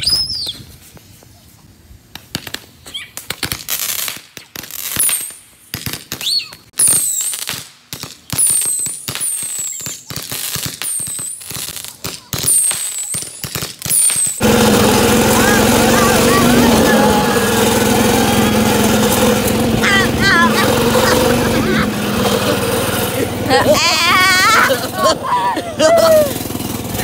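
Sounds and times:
fireworks crackling and banging: 2.1s - 25.3s
dirt bike engine running: 14.4s - 27.0s.

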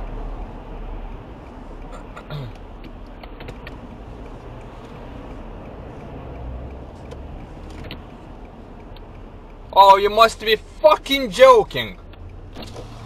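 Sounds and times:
traffic road rumble: 0.0s - 13.0s
faint clicks: 1.1s - 9.7s, 12.0s - 12.9s.

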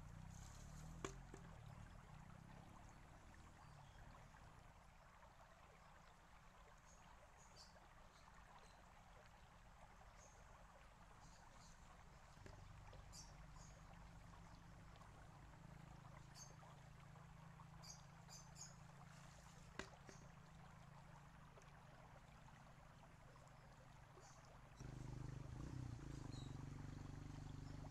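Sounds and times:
fountain water trickling: 0.0s - 27.9s.

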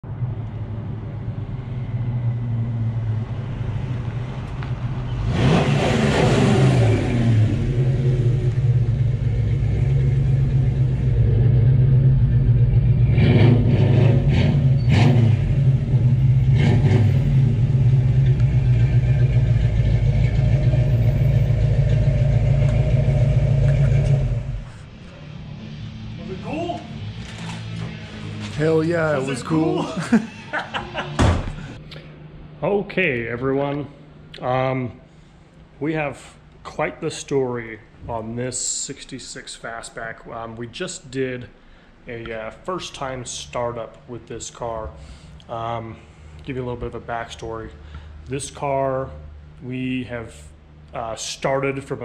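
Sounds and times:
car engine revving: 4.6s - 31.8s.

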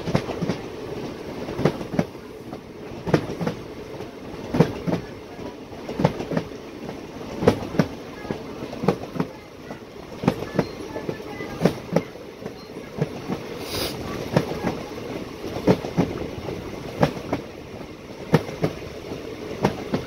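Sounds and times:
train wheels clicking over rail joints: 0.0s - 9.3s, 10.0s - 20.0s
train running noise: 0.0s - 20.0s
short hiss: 13.6s - 14.0s.

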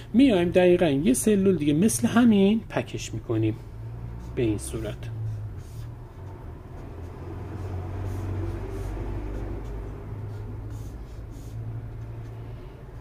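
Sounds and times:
steady low hum: 2.5s - 13.0s
marker scratching on whiteboard: 4.0s - 13.0s.

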